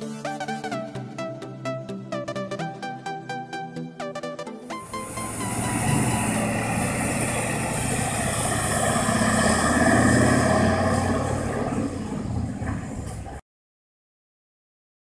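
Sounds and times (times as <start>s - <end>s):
diesel truck accelerating away: 4.8s - 13.4s.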